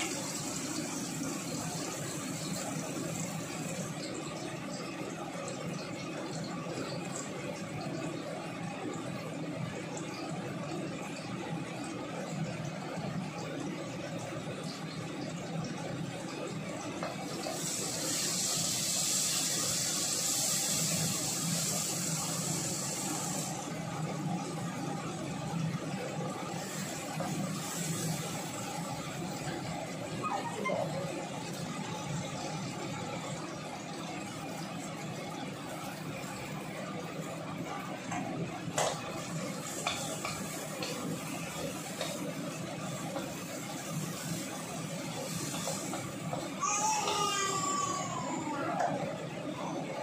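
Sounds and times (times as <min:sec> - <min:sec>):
vegetables sizzling in a wok: 0:00.0 - 0:04.4, 0:17.2 - 0:25.0, 0:26.3 - 0:32.9, 0:38.7 - 0:48.6.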